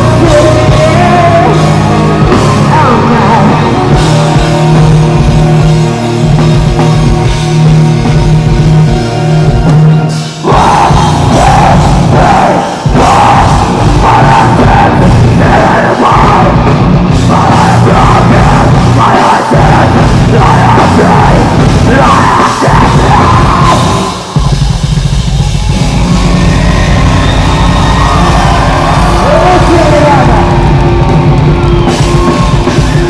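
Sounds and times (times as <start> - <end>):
shouted vocals: 0.0 - 4.6, 10.4 - 24.5, 26.1 - 33.0
bass guitar: 0.0 - 33.0
distorted electric guitars: 0.0 - 33.0
drum kit: 0.0 - 33.0.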